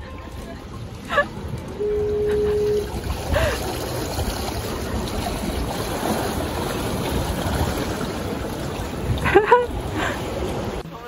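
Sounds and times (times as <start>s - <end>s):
wind: 0.0s - 11.0s
water washing against rocks: 2.8s - 10.8s.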